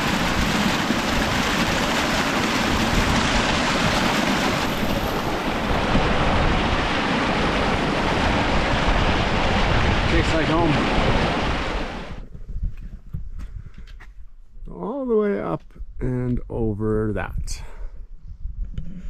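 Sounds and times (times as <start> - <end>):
stream rushing over rocks: 0.0 - 12.2.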